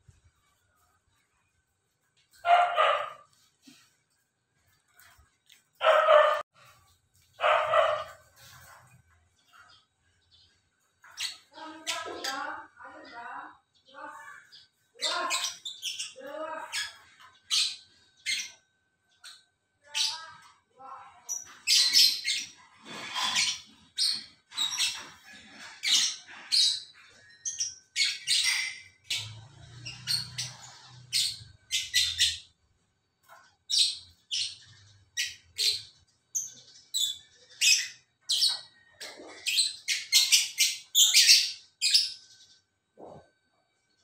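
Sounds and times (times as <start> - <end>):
lovebirds chirping and squawking: 2.3 - 44.0.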